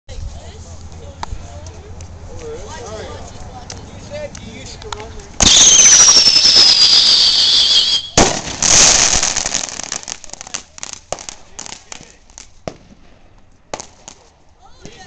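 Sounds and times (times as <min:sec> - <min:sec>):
firework whistle falling in pitch: 0:05.4 - 0:08.2
firework bang: 0:05.4 - 0:10.0
firework hiss: 0:05.4 - 0:12.0
crackling pops: 0:08.2 - 0:15.0.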